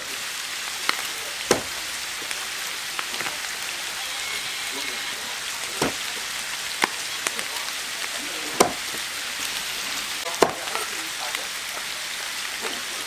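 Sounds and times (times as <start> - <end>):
steady hiss: 0.0 - 13.0
cleaver chopping on wooden block: 1.5 - 1.8, 8.6 - 8.9.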